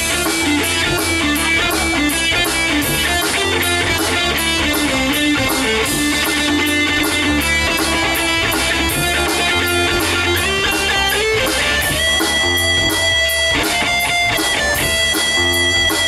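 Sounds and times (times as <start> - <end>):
bass line: 0.0 - 16.0
drums and cymbals: 0.0 - 16.0
electric guitar: 0.0 - 16.0.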